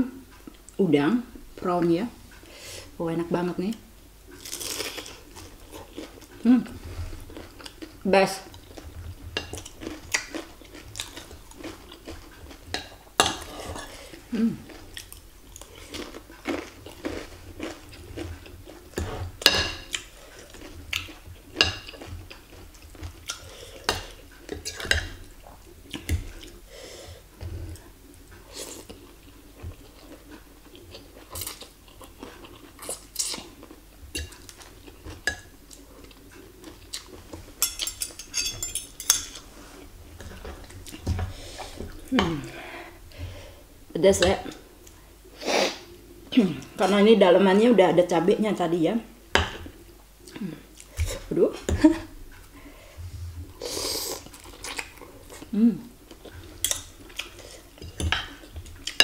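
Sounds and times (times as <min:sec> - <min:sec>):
chewing: 0:04.3 - 0:26.6, 0:27.4 - 0:43.4, 0:53.5 - 0:59.0
cutlery clinking on a plate: 0:37.6 - 0:39.4.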